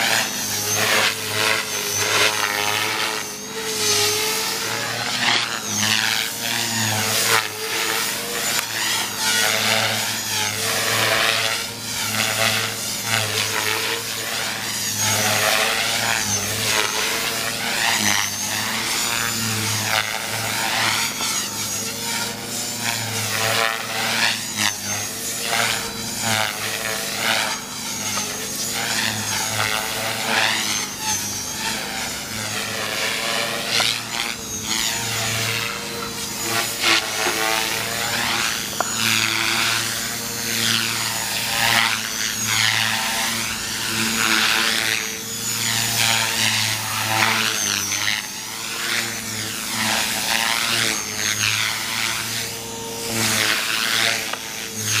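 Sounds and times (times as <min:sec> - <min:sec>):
rc helicopter rotor and motor whine: 0:00.0 - 0:55.0.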